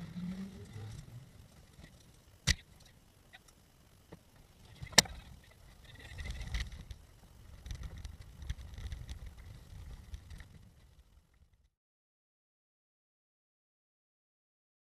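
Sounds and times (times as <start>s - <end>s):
car rolling over grass rumbling: 0.0s - 2.3s.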